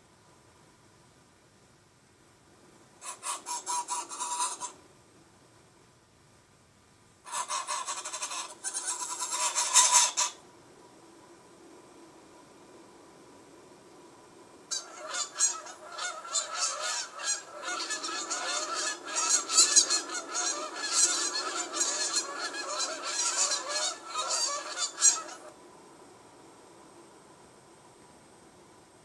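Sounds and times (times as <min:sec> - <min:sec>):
geese honking: 0:03.0 - 0:04.8, 0:07.3 - 0:10.4, 0:14.7 - 0:25.5.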